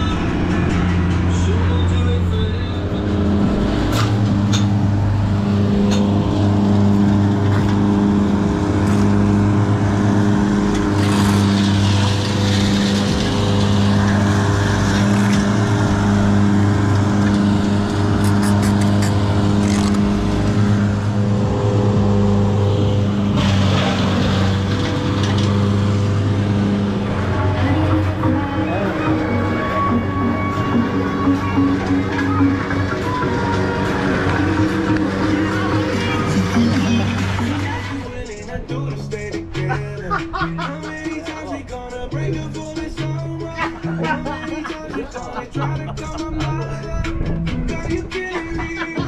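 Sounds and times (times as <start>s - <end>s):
small engine running: 0.0s - 38.5s.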